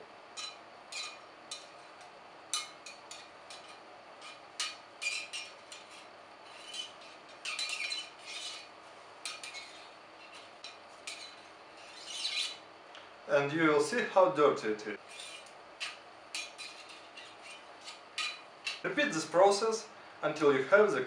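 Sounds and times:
cleaning rod scraping gun barrel: 0:02.6 - 0:12.6, 0:15.0 - 0:18.9.

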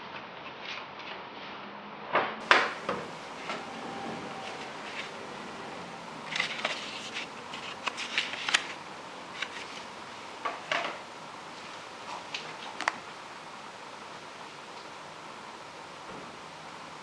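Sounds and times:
faint steady hiss: 0:02.4 - 0:17.0
paper packaging rustling: 0:02.6 - 0:05.6, 0:06.2 - 0:10.0.

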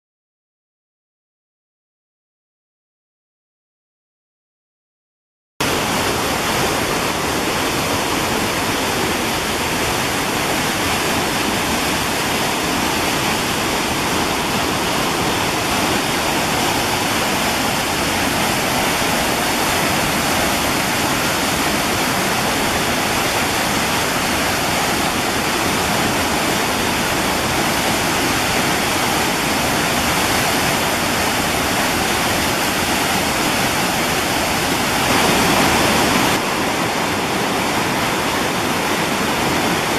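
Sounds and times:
waterfall rushing over boulders: 0:05.6 - 0:39.9.

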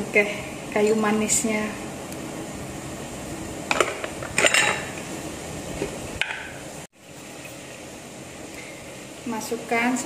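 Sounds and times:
broth boiling hiss: 0:00.0 - 0:10.0
metal utensil clinking on pot: 0:03.7 - 0:04.9.

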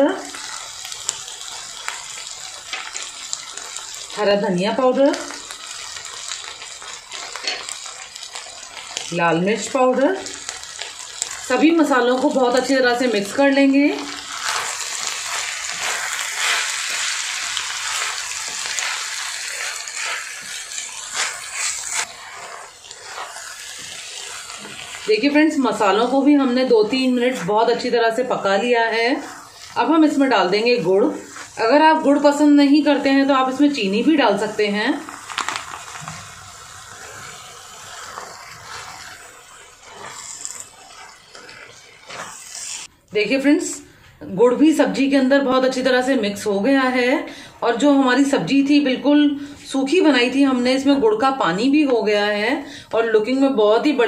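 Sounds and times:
spices sizzling in oil: 0:00.0 - 0:54.0
wooden spatula scraping pan: 0:11.2 - 0:42.9.

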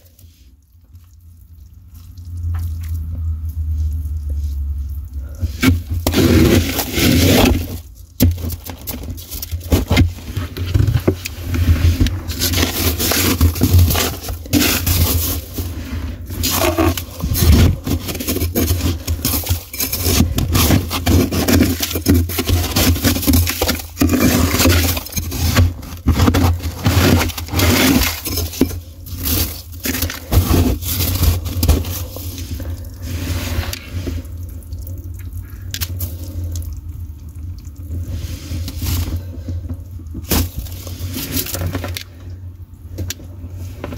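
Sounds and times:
freezer humming: 0:00.0 - 0:43.9
scraper crunching frost: 0:05.4 - 0:34.2.

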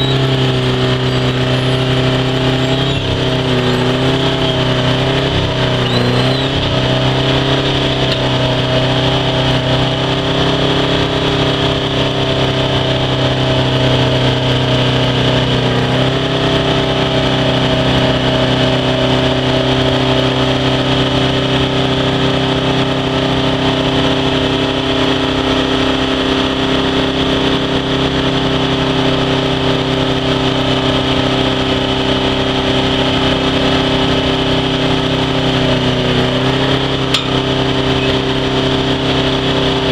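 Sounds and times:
trencher engine running under load: 0:00.0 - 0:39.9.

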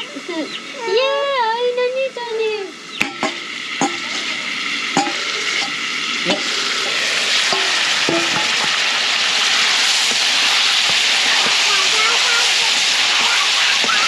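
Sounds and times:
meat sizzling in a wok: 0:00.0 - 0:14.0
ladle knocking against pan: 0:03.0 - 0:04.3, 0:05.0 - 0:06.6, 0:07.5 - 0:08.8.

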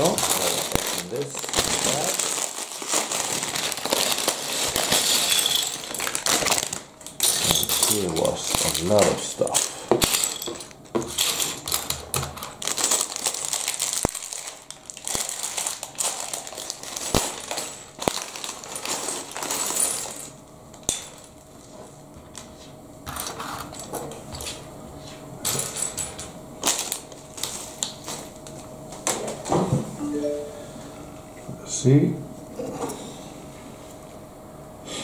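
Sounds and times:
plastic bag rustling: 0:00.0 - 0:09.8, 0:11.1 - 0:20.3.

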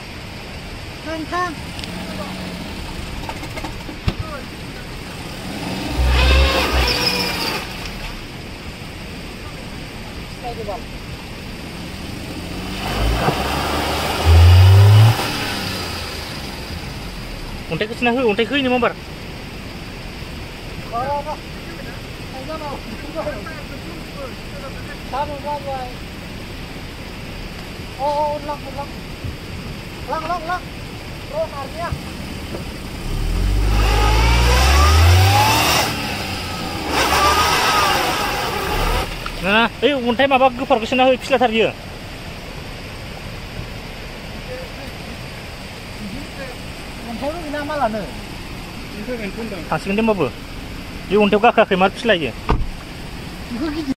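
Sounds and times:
car engine revving: 0:01.4 - 0:08.4, 0:11.5 - 0:18.5, 0:31.3 - 0:39.8.

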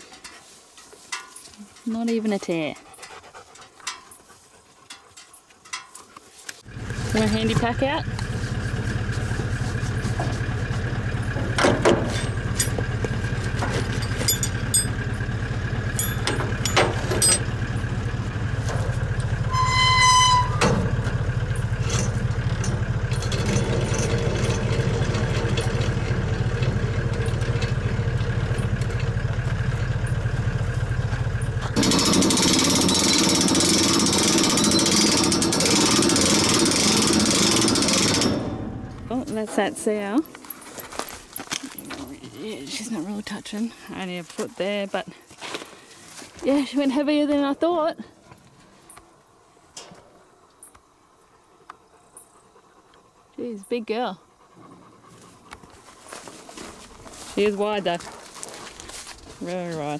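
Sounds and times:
metal clanks and knocks: 0:00.0 - 0:42.3
vehicle engine idling: 0:06.6 - 0:47.1.

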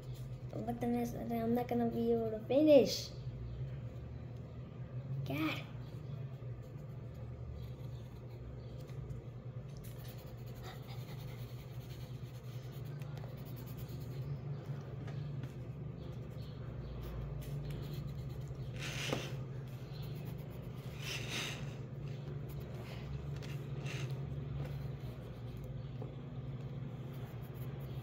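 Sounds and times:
steady low hum: 0:00.0 - 0:28.0
pencil scratching on paper: 0:09.7 - 0:14.4, 0:16.0 - 0:26.1, 0:26.9 - 0:28.0.

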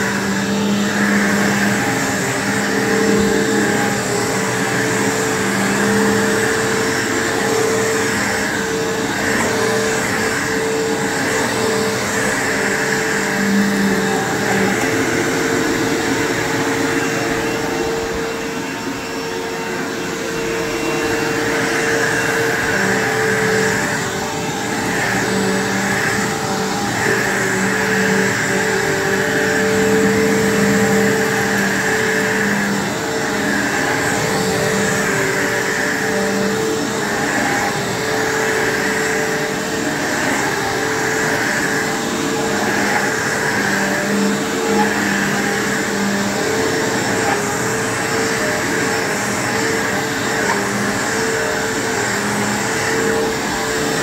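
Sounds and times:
vacuum cleaner on carpet: 0:00.0 - 0:54.0.

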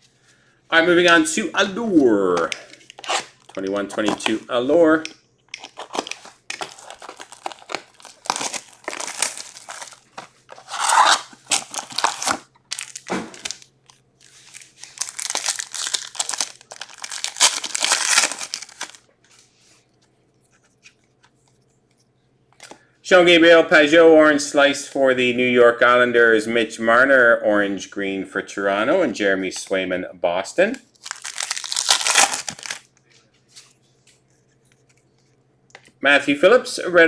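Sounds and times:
plastic and foil crinkling and tearing: 0:05.5 - 0:19.1, 0:30.9 - 0:32.9.

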